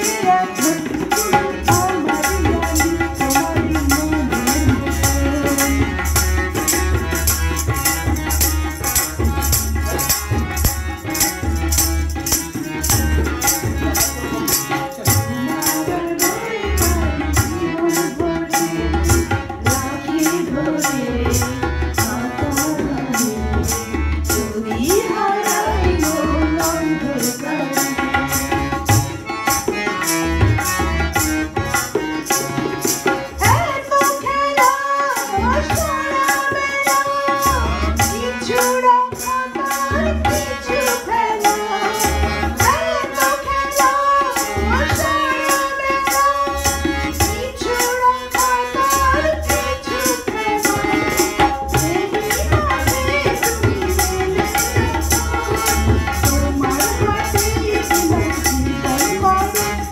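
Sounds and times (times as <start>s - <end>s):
tabla-style drumming: 0.0s - 59.9s
woman singing over microphone: 15.2s - 27.9s, 33.4s - 51.1s, 51.7s - 59.9s.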